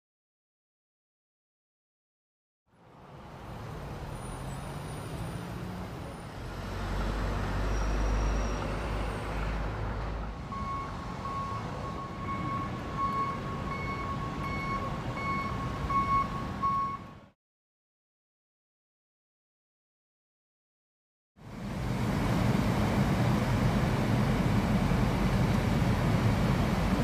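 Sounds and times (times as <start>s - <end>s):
diesel engine rumbling: 3.0s - 17.3s, 21.4s - 27.0s
reversing alarm beeping: 10.5s - 17.2s.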